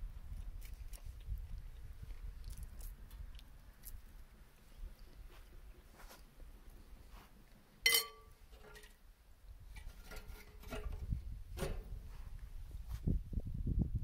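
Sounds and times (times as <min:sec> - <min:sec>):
sharp ringing clink: 0:07.9 - 0:08.3.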